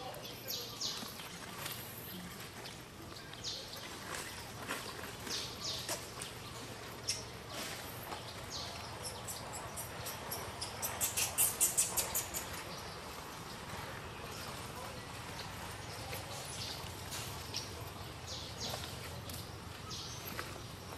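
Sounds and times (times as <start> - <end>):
sharp clicking chirps: 9.1 - 12.6.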